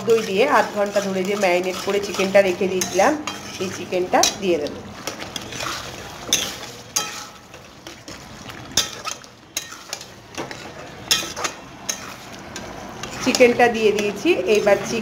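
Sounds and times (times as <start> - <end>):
frying sizzle: 0.0 - 15.0
metal spoon scraping a pan: 0.0 - 15.0.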